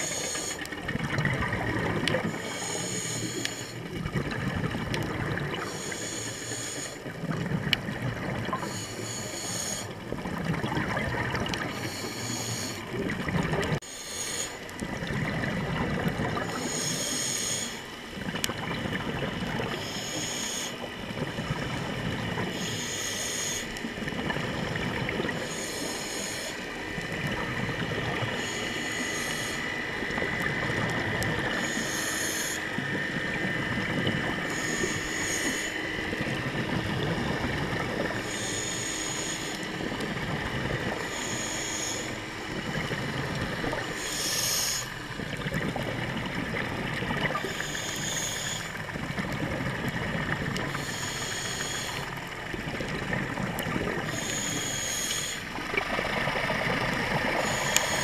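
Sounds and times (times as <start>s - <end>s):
regulator inhale hiss: 0.0s - 0.8s, 2.0s - 3.9s, 5.5s - 7.2s, 8.4s - 10.0s, 11.5s - 13.0s, 13.8s - 14.8s, 16.4s - 18.0s, 19.6s - 20.9s, 22.3s - 24.1s, 25.3s - 27.5s, 28.1s - 33.3s, 34.3s - 36.3s, 38.0s - 40.0s, 40.8s - 42.9s, 43.6s - 45.1s, 47.3s - 48.9s, 50.6s - 52.2s, 53.9s - 55.6s, 57.4s - 58.0s
exhale bubbling rumble: 0.0s - 6.2s, 6.9s - 13.8s, 14.7s - 20.1s, 20.8s - 23.0s, 26.8s - 29.0s, 32.7s - 58.0s.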